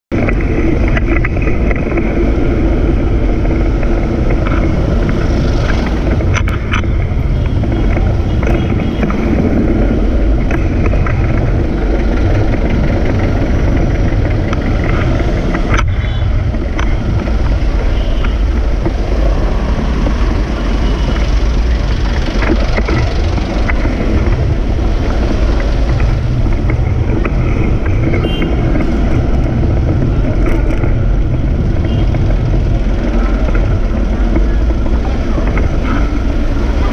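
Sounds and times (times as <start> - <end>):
motorcycle engines: 0.1 - 36.9
wind and road noise: 0.1 - 36.9.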